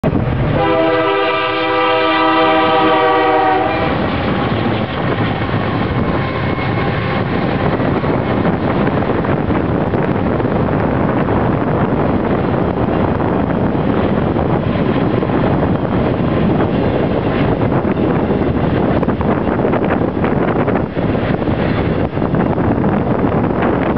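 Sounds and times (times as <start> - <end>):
freight train rumbling past: 0.0 - 23.9
locomotive air horn blast: 0.5 - 4.4.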